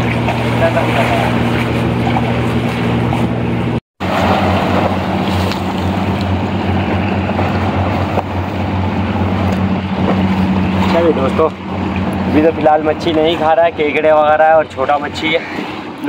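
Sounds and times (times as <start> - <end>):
low boat engine hum: 0.0 - 16.0
sea water lapping: 0.0 - 16.0.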